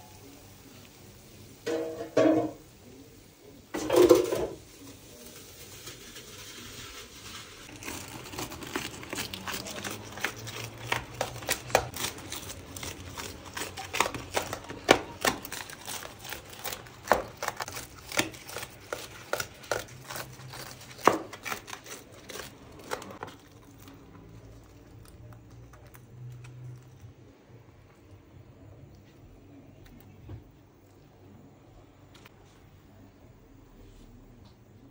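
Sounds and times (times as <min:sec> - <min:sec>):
crisp material crinkling and tearing: 0:06.0 - 0:27.0.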